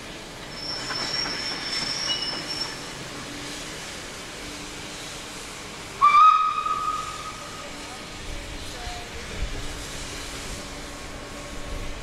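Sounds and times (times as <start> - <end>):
steam hissing: 0.0 - 12.0
steam locomotive whistle: 6.0 - 7.6.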